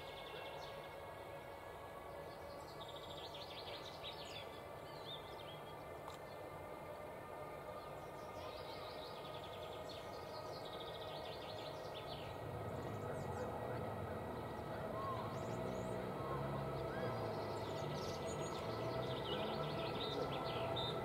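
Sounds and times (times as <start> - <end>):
distant train rumble: 0.0 - 21.0
songbirds trilling: 7.8 - 21.0.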